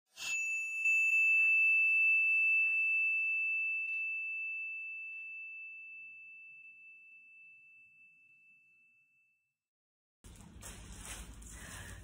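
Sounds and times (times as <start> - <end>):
high bell-like ding: 0.1 - 9.4.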